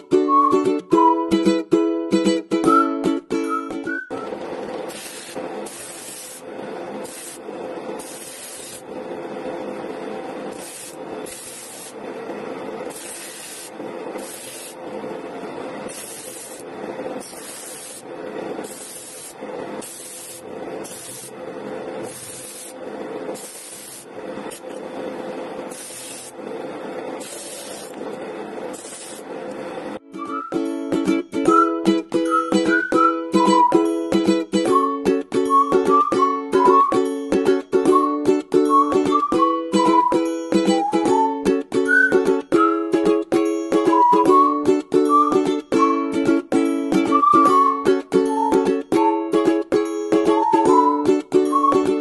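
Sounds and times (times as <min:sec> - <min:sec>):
wood sanding hiss: 0:04.9 - 0:06.4, 0:07.0 - 0:08.8, 0:10.5 - 0:12.0, 0:12.9 - 0:14.8, 0:15.9 - 0:16.6, 0:17.2 - 0:21.3, 0:22.0 - 0:24.1, 0:25.7 - 0:26.4.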